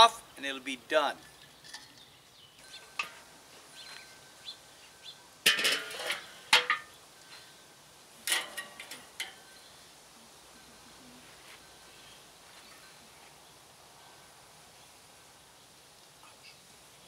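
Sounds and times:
metal grate clinking: 0:01.2 - 0:04.2, 0:05.4 - 0:07.0, 0:08.2 - 0:09.6
grill lid clanking: 0:02.7 - 0:03.9, 0:05.4 - 0:07.0, 0:08.2 - 0:09.4.

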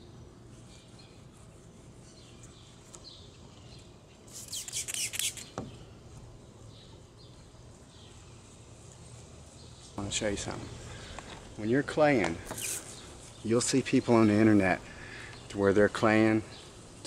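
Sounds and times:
spray bottle squirting: 0:04.2 - 0:05.7, 0:12.4 - 0:13.0.

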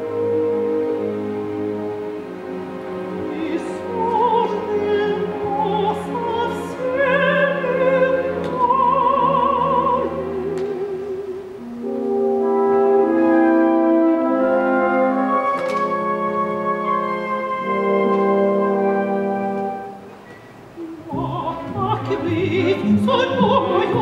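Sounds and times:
orchestral accompaniment: 0:00.0 - 0:24.0
operatic soprano singing: 0:03.2 - 0:12.0, 0:20.8 - 0:24.0.

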